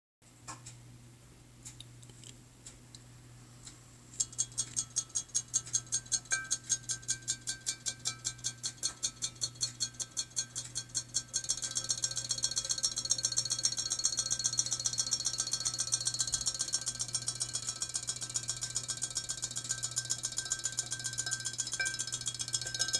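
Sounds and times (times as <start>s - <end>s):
toy tail mechanism clicking: 4.2s - 22.9s
low hum: 9.1s - 22.9s.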